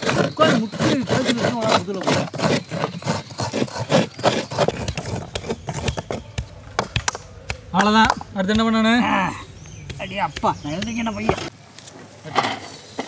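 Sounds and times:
coconut scraping on graters: 0:00.0 - 0:11.6.

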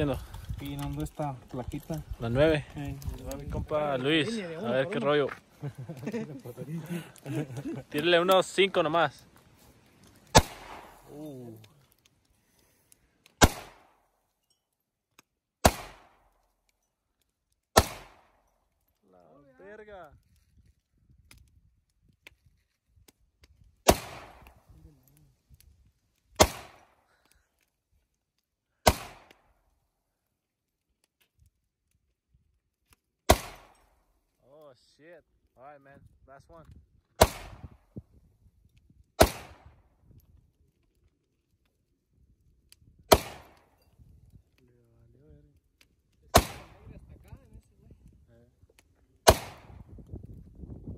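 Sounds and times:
rifle shots with echo: 0:10.3 - 0:11.1, 0:13.4 - 0:14.0, 0:15.6 - 0:16.3, 0:17.8 - 0:18.4, 0:23.8 - 0:24.5, 0:26.4 - 0:27.0, 0:28.8 - 0:29.4, 0:33.3 - 0:33.8, 0:37.2 - 0:37.7, 0:39.2 - 0:39.8, 0:43.1 - 0:43.7, 0:46.3 - 0:47.0, 0:49.2 - 0:49.8.

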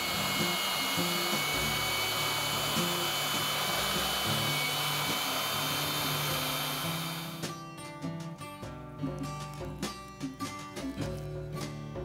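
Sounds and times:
bandsaw whining cutting steel: 0:00.0 - 0:07.5
background music with bass: 0:00.0 - 0:12.0.

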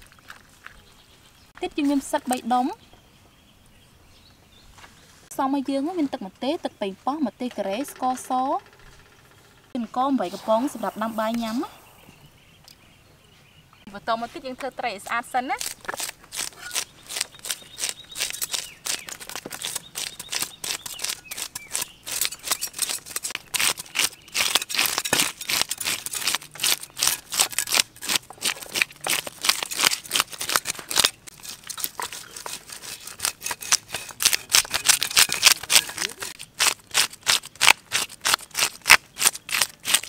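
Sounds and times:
fish scales being scraped: 0:15.6 - 0:40.0.

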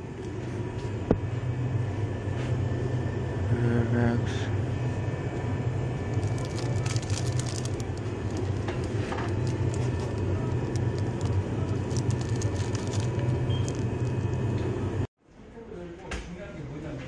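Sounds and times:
refrigerated case humming: 0:00.0 - 0:15.1
plastic wrapper crackling: 0:06.0 - 0:14.5.

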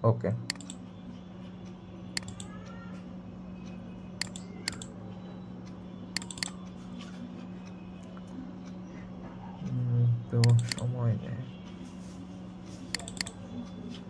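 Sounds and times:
steady low hum: 0:00.0 - 0:14.0
computer mouse clicking: 0:00.5 - 0:00.8, 0:02.2 - 0:02.6, 0:04.2 - 0:04.9, 0:06.2 - 0:06.7, 0:10.4 - 0:10.9, 0:12.9 - 0:13.4.

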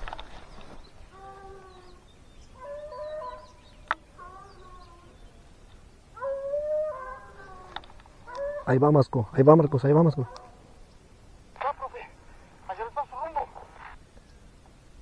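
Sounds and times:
hounds baying: 0:02.5 - 0:03.6, 0:06.2 - 0:09.0, 0:09.8 - 0:10.8.

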